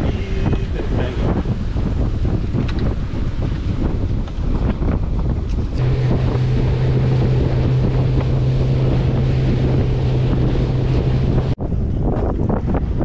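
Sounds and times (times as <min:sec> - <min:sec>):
rush of wake and spray: 0:00.0 - 0:11.6
wind noise on microphone: 0:00.0 - 0:13.0
motorboat engine drone: 0:05.7 - 0:11.6.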